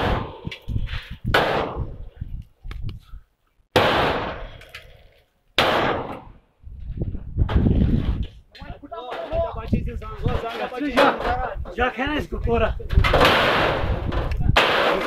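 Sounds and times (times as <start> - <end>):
loud crashing bangs of metal: 3.7 - 4.4, 13.0 - 15.0.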